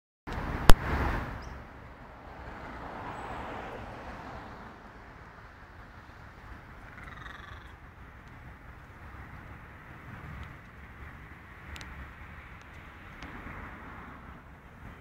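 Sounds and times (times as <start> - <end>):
road traffic passing: 0.3 - 15.0.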